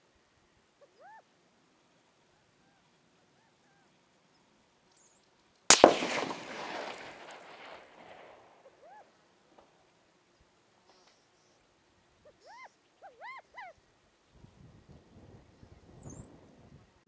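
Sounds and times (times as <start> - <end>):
rifle shot with echo: 5.7 - 8.7.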